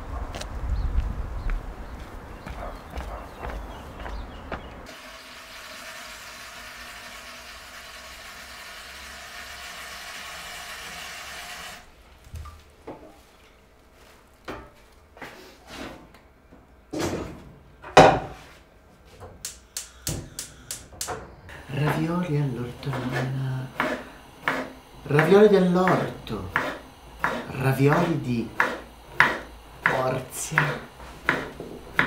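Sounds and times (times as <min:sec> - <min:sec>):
footsteps on a path: 0:00.3 - 0:04.9.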